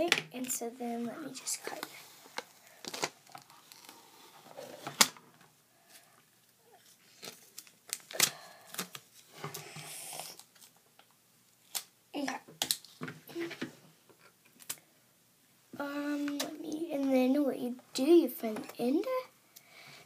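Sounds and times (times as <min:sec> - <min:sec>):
tape rustling: 0:00.4 - 0:06.0, 0:06.7 - 0:13.6.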